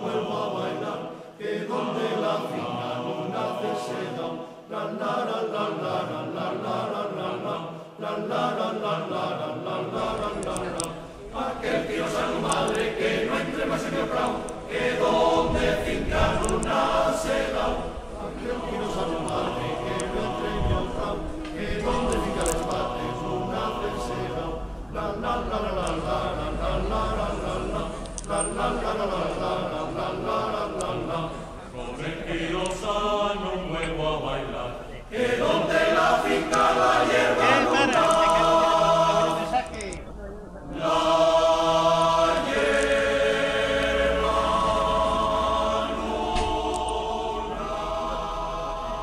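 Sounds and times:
choir singing: 0.0 - 49.0.

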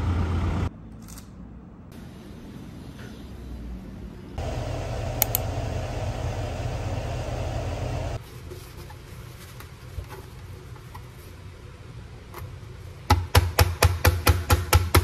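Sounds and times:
machine hum: 4.4 - 8.2
sharp clicks: 5.2 - 5.5.

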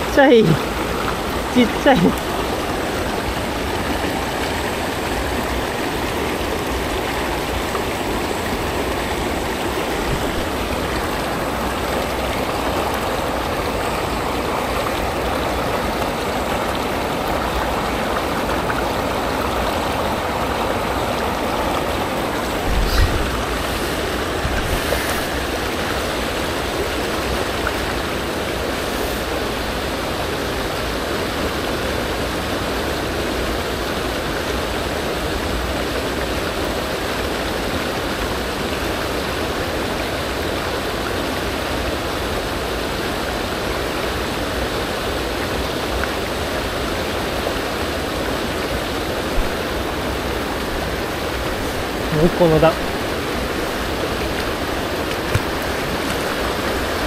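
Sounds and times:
river rushing over stones: 0.0 - 57.0
low bump: 22.5 - 23.8.

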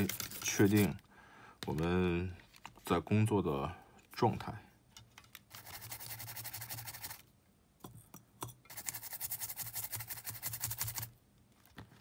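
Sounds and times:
brush scrubbing: 0.0 - 1.0, 8.7 - 11.1.

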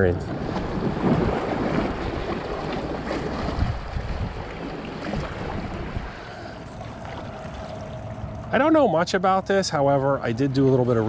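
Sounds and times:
wind buffeting microphone: 0.0 - 6.4
waves splashing against rocks: 0.3 - 8.0.

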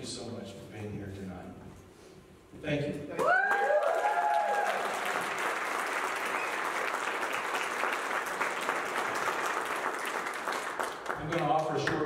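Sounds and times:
crowd applauding: 3.2 - 12.0.

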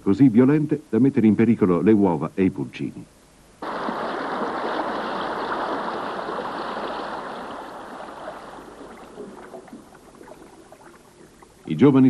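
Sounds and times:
river water rushing through rapids: 3.6 - 11.0.

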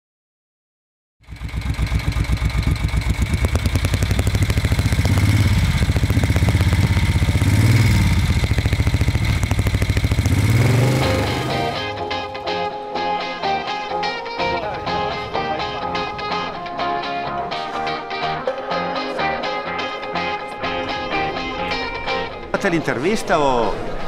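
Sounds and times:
motorcycle engine revving: 1.2 - 12.6
guitar music: 10.5 - 24.0.

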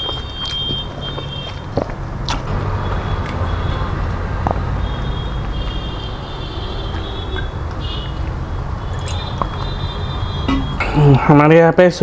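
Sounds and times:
man gulping water: 6.9 - 9.8.

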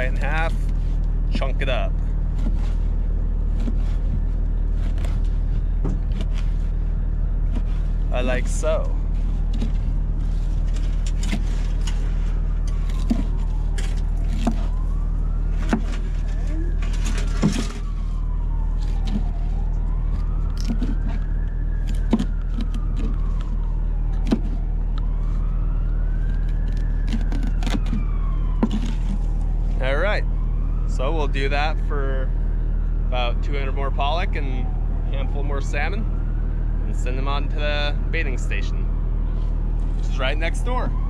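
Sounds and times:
low machine hum: 0.0 - 40.3
siren wailing: 0.0 - 41.0
knife chopping on wooden board: 12.9 - 13.5, 14.2 - 14.8, 15.6 - 16.0, 21.9 - 23.5, 24.2 - 24.6, 26.7 - 28.0, 28.6 - 29.2.

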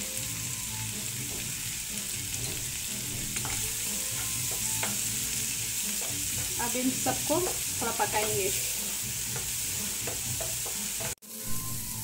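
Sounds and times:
vegetables sizzling in frying pan: 0.0 - 12.0
spatula stirring: 2.3 - 11.2
spatula knocking against pan: 2.4 - 5.1, 9.3 - 11.2.

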